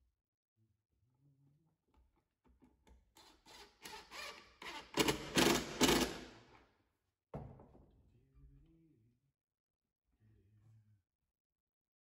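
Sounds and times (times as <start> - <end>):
impact driver rattling: 3.5 - 6.5.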